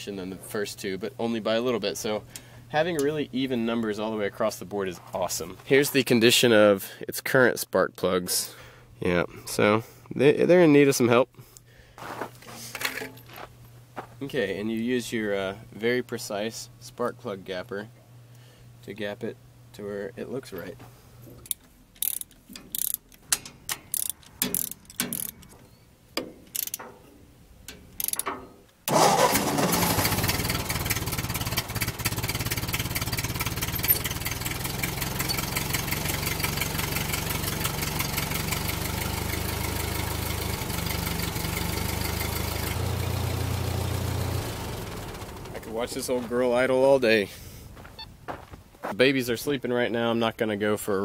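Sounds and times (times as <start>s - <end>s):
hand tools clicking and tapping: 21.4s - 25.6s, 26.2s - 27.0s, 27.7s - 28.6s
tractor engine idling: 27.7s - 46.3s.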